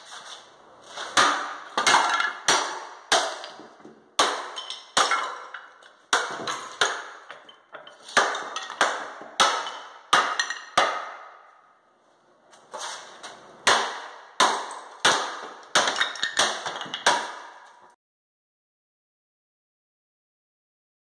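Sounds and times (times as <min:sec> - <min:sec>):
hammer blows cracking: 0:01.1 - 0:11.6, 0:13.6 - 0:18.0.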